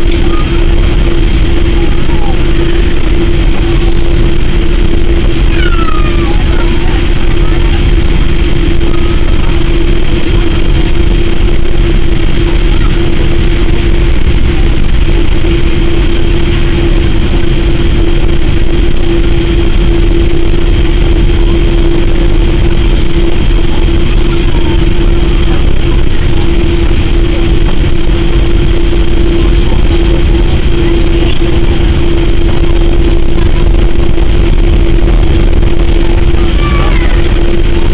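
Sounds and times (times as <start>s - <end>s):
airliner cabin rumble: 0.0s - 37.9s
mid-pitched hum: 0.0s - 37.9s.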